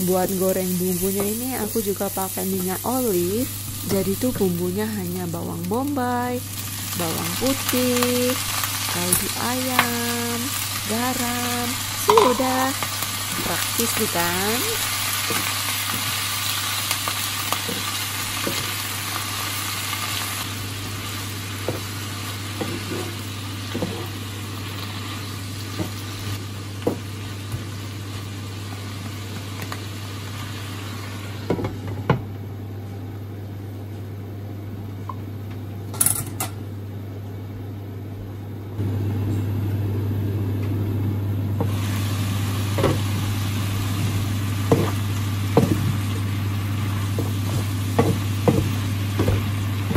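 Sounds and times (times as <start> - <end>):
vegetables sizzling in a frying pan: 0.0 - 32.4, 41.4 - 49.9
glass lid clink: 12.1 - 12.5.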